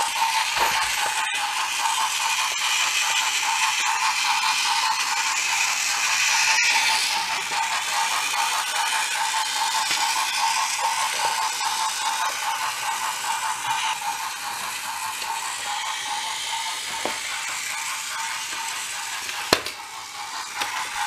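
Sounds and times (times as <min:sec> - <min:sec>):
toy train motor whirring: 0:00.0 - 0:21.0.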